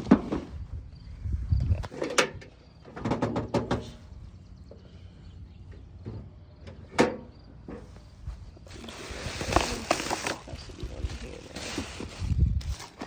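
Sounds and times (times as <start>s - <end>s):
hand tools clattering in plastic crate: 9.4s - 13.0s.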